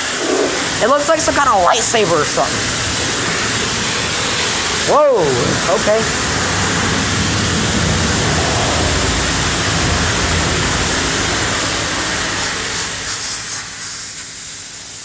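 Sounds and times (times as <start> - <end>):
pressure washer water spray: 0.0 - 15.0.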